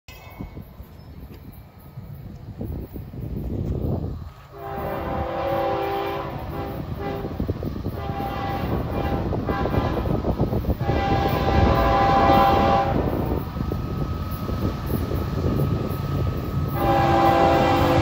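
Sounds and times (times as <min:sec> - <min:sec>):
low rumble of train: 0:00.1 - 0:18.0
train air horn blasts: 0:04.5 - 0:13.3, 0:16.7 - 0:18.0.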